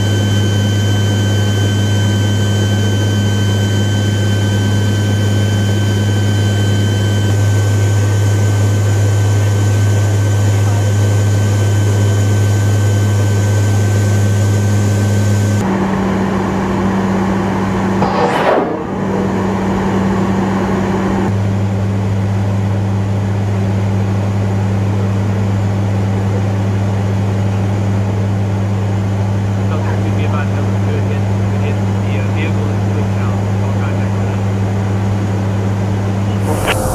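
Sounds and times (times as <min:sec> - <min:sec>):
propeller aircraft engines droning: 0:00.0 - 0:23.5, 0:25.0 - 0:36.9
brief rushing noise: 0:18.0 - 0:19.8, 0:36.3 - 0:36.9.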